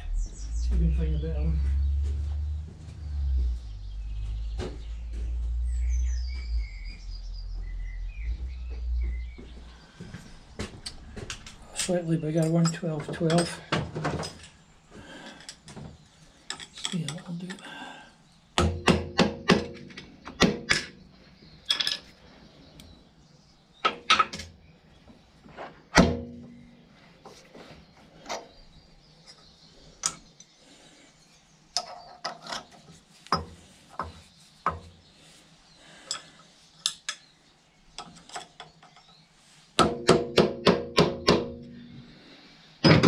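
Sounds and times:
metal tools clinking: 11.7 - 14.6, 16.5 - 17.7.

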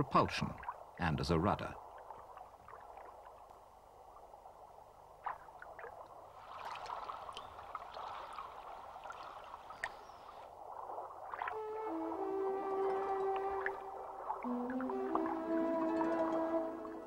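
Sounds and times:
water gurgling and lapping: 0.0 - 17.0
small clicks and splashes: 5.2 - 11.6.

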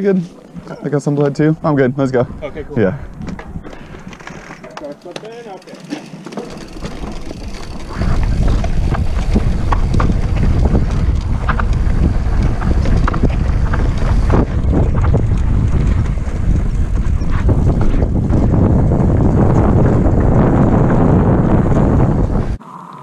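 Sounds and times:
wind buffeting microphone: 1.3 - 4.2, 6.6 - 22.6
bike tyres clicking on rock: 3.0 - 22.6
low rumble: 7.9 - 22.6.

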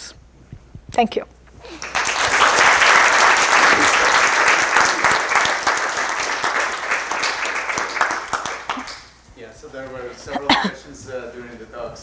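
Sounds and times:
audience applauding: 1.6 - 9.2.

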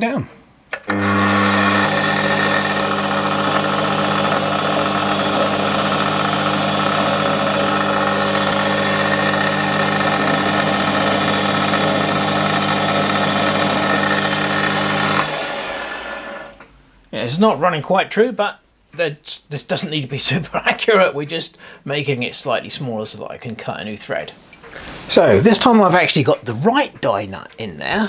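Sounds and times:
metal lathe humming and whining: 0.9 - 16.6.

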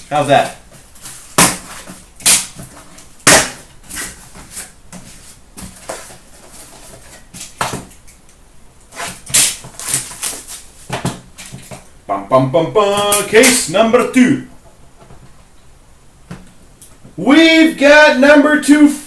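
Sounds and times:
cardboard snaps and clatters: 9.2 - 11.7.

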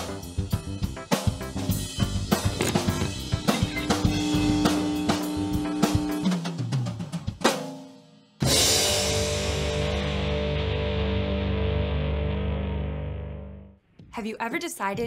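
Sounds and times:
rock drum kit playing fast: 0.0 - 11.8
held bass note: 2.5 - 6.3
distorted electric guitar chord: 2.6 - 6.4, 8.5 - 13.7.

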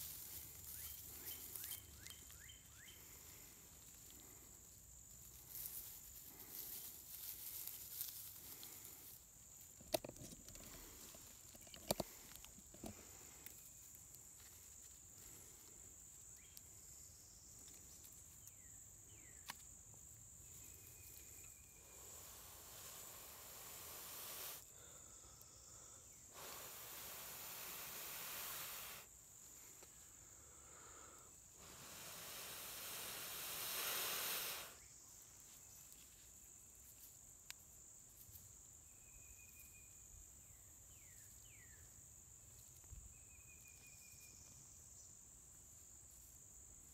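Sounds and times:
high insect drone: 0.0 - 46.9
breaths blown into tinder: 26.3 - 29.1, 31.6 - 34.8.

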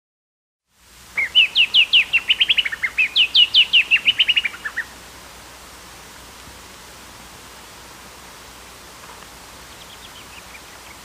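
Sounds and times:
bird singing trilled song: 1.2 - 4.9, 9.7 - 11.0.

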